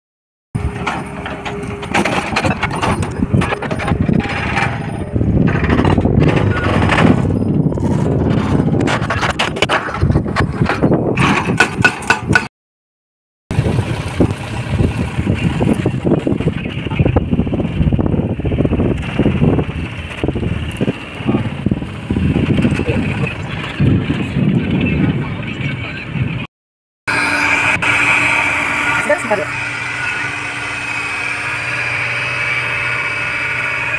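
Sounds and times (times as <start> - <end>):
excavator engine running: 0.6 - 12.5, 13.5 - 26.5, 27.1 - 33.9
wind buffeting microphone: 2.4 - 12.5, 13.5 - 26.5.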